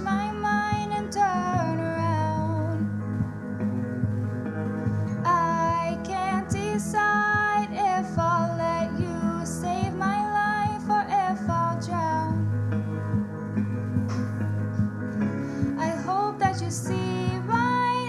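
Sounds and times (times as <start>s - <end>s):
woman singing a slow ballad: 0.0s - 3.0s, 5.2s - 12.6s, 15.6s - 18.0s
soft instrumental accompaniment: 0.0s - 18.0s.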